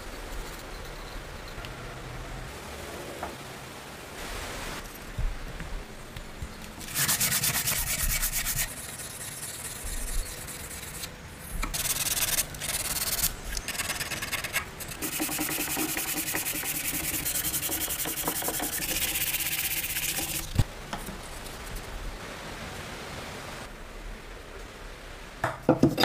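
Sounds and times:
hand sanding wood: 6.8s - 20.6s.

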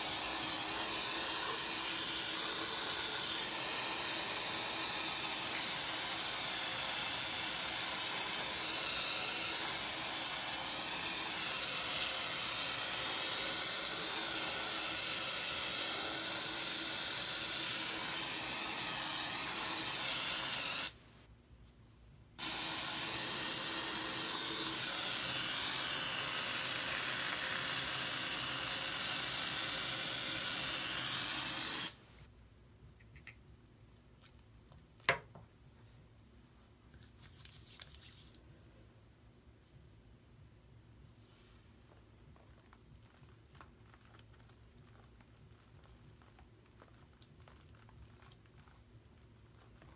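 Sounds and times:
aerosol can spraying hiss: 0.0s - 21.0s, 22.4s - 32.0s.

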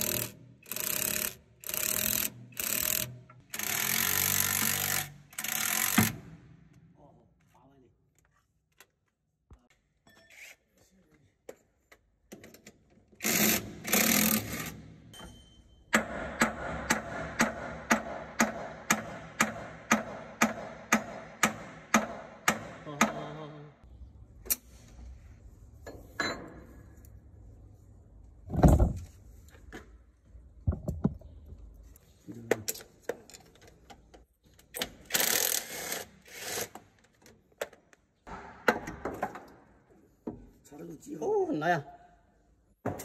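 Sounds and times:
impact wrench bursts: 0.0s - 6.4s, 13.2s - 14.9s, 34.8s - 36.8s.

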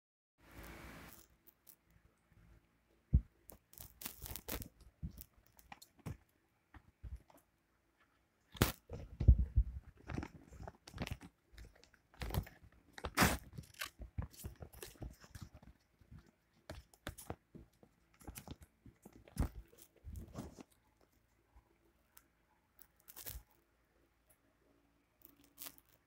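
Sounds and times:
paper rustling and crinkling: 8.6s - 20.8s.

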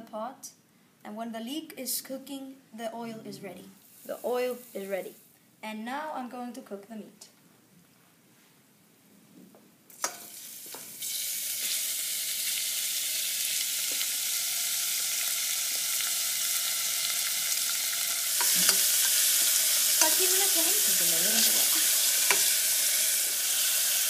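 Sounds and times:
meat sizzling in hot oil: 9.9s - 24.0s.

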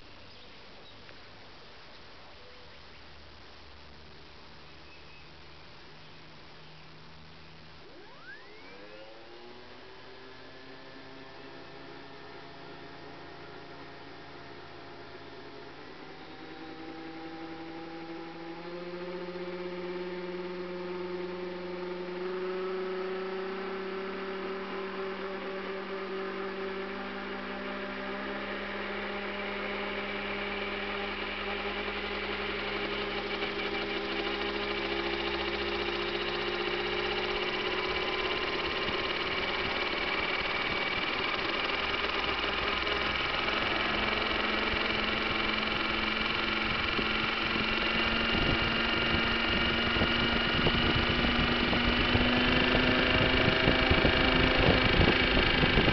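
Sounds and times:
helicopter drive whine: 1.4s - 55.9s.

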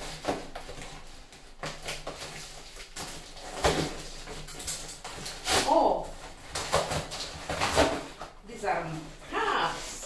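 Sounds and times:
paper rustling and tearing: 0.0s - 8.4s.

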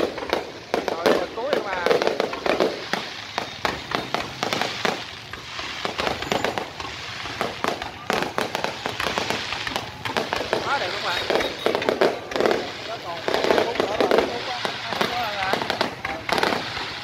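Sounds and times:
fireworks bangs and crackles: 0.0s - 17.0s.

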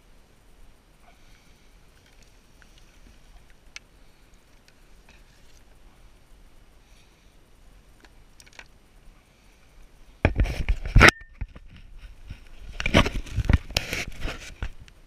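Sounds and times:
faint ticks: 0.0s - 15.0s
camera handling noise: 12.4s - 14.8s.

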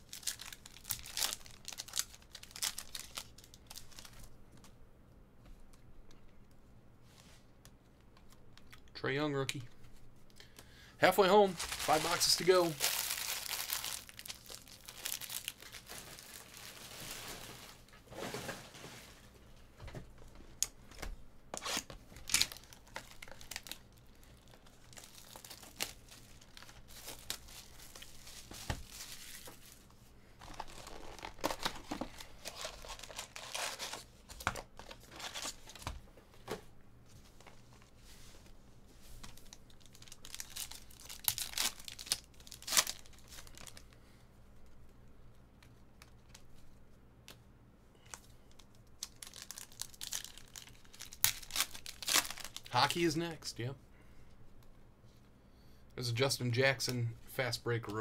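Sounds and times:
wrappers tearing and crinkling: 0.0s - 4.3s, 11.1s - 18.3s, 21.6s - 35.8s, 39.2s - 43.9s, 48.1s - 53.1s.

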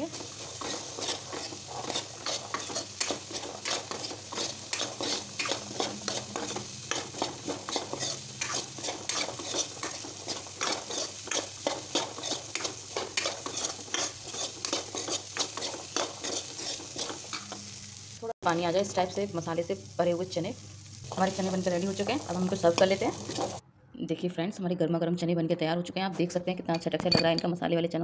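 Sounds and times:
stirring and scraping in a pan: 0.0s - 18.1s, 21.1s - 23.6s
frying sizzle: 0.0s - 23.6s.

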